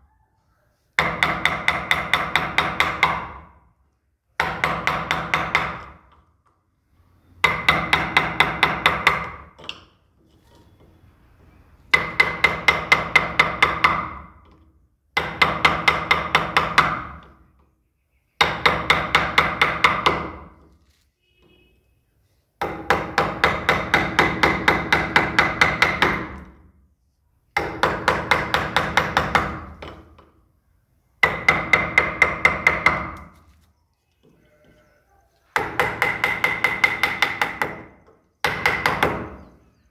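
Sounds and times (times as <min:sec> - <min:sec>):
hammer striking chisel into wood: 0:01.0 - 0:03.6, 0:04.4 - 0:06.2, 0:07.4 - 0:09.9, 0:11.9 - 0:17.4, 0:18.4 - 0:20.6, 0:22.6 - 0:26.6, 0:27.6 - 0:30.3, 0:31.2 - 0:33.3, 0:35.6 - 0:39.5.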